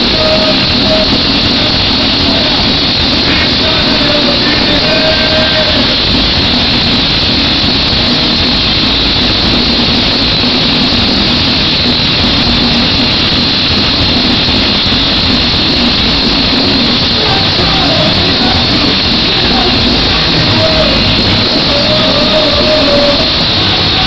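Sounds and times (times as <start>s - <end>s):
concert crowd roaring: 0.0s - 24.0s
low steady hum: 0.0s - 24.0s.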